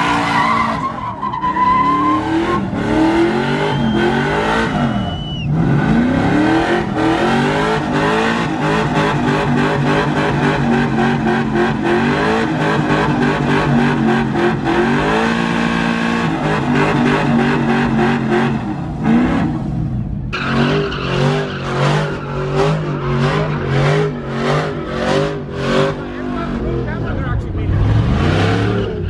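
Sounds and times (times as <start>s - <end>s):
tires spinning and squealing: 0.0s - 29.0s
truck engine revving high: 0.0s - 29.0s.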